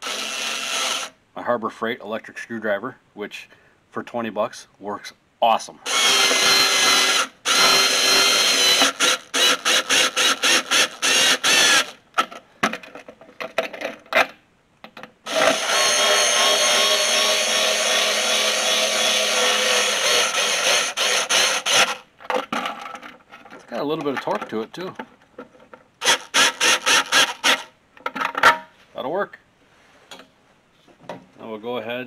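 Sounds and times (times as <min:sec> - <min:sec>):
electric screwdriver whirring: 0:00.0 - 0:01.1, 0:05.9 - 0:12.0, 0:15.3 - 0:22.0, 0:26.0 - 0:27.7.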